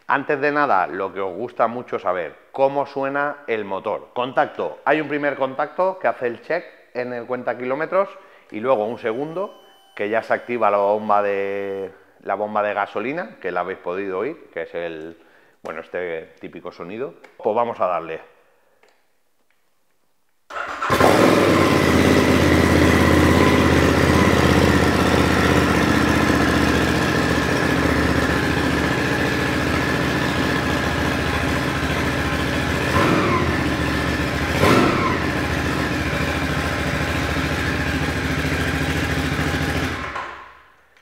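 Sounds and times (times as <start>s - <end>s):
motorcycle engine idling: 20.8s - 40.2s
motorcycle throttle blips: 20.8s - 40.2s.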